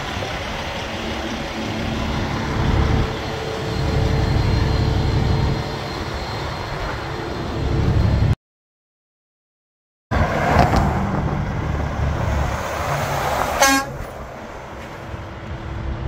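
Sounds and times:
diesel truck engine idling: 0.0s - 8.3s.

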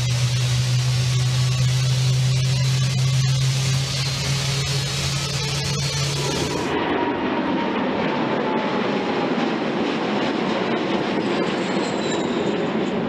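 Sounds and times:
jet engine roar with whine: 0.0s - 13.0s.

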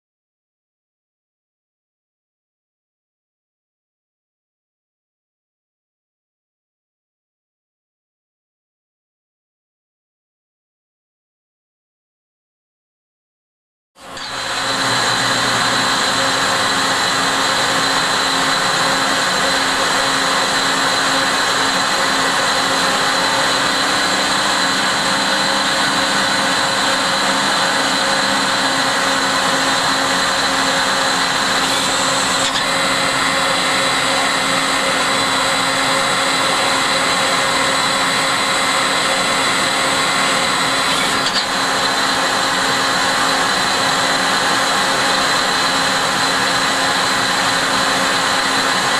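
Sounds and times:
lathe machine whine: 14.0s - 48.9s.

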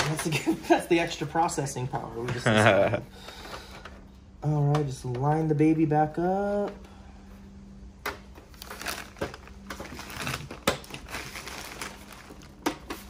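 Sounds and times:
plastic cover scraping and rustling: 8.5s - 13.0s.

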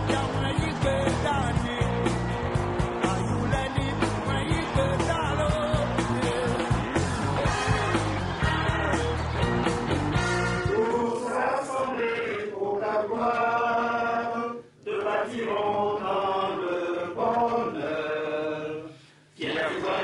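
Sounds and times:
men singing a slow chant: 10.6s - 20.0s.

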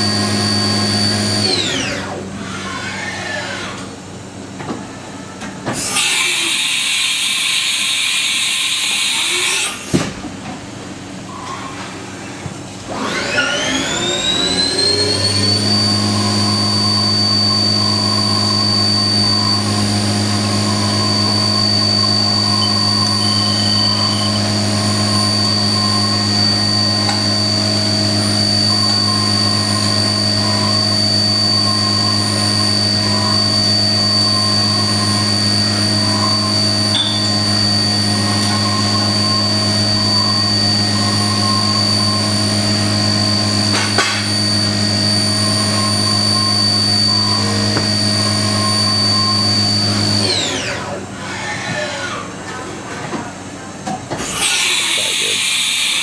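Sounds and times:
mill spindle high-pitched whine: 0.0s - 10.1s, 11.0s - 52.6s, 53.8s - 56.0s.

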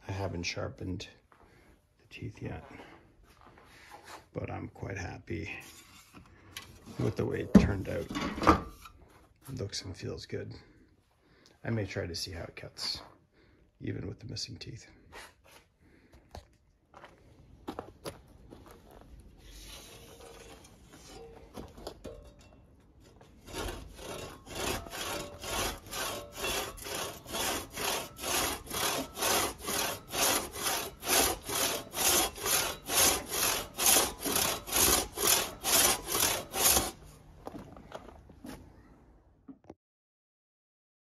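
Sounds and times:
hand saw sawing through log: 23.0s - 37.1s.

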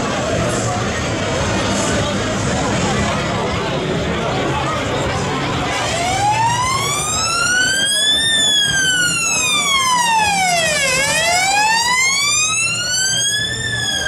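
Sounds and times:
police siren wailing: 5.6s - 14.0s.

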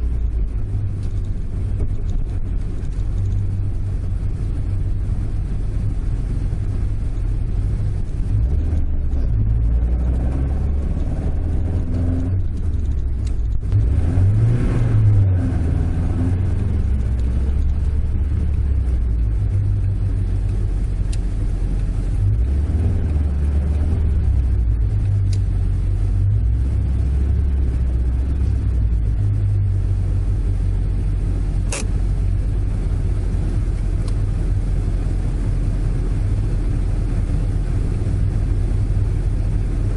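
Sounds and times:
car engine heard from cabin: 0.0s - 39.9s
sharp click: 31.6s - 32.0s.

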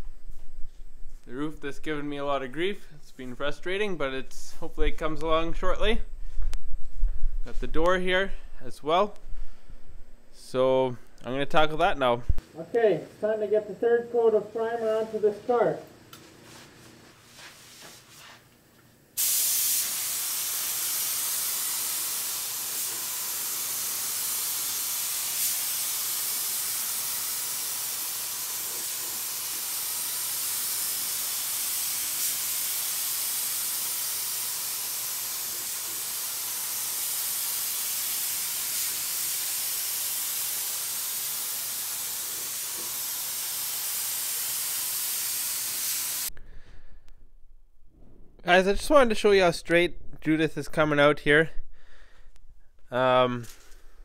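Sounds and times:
spray gun hissing: 19.2s - 46.3s.

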